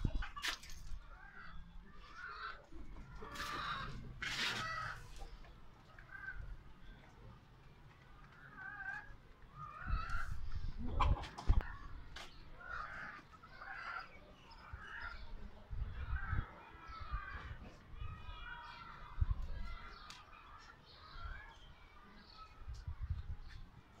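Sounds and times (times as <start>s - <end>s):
chickens squawking: 0.0s - 6.6s, 8.3s - 17.6s.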